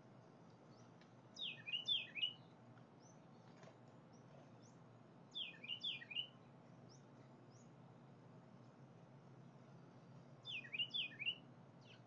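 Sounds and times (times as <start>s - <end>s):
songbird whistled phrases: 1.4s - 2.4s, 5.4s - 6.4s, 10.4s - 12.0s.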